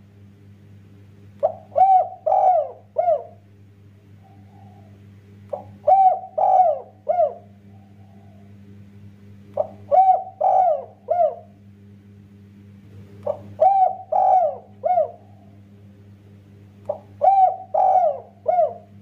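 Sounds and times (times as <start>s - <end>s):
steady low hum: 0.0s - 19.0s
dove cooing: 1.4s - 3.4s, 4.1s - 8.6s, 9.5s - 11.6s, 13.2s - 15.6s, 16.9s - 19.0s.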